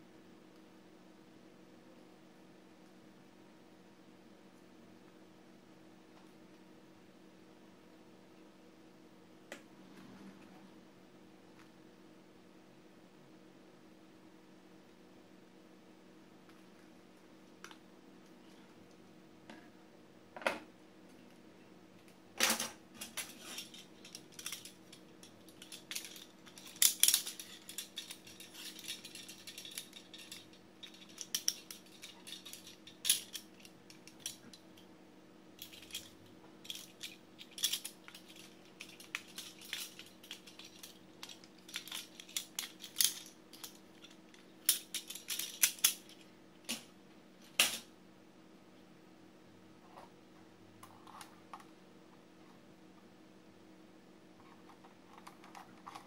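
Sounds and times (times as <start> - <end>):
plastic toy pieces clicking: 23.6 - 34.4, 35.6 - 44.1, 44.7 - 46.0.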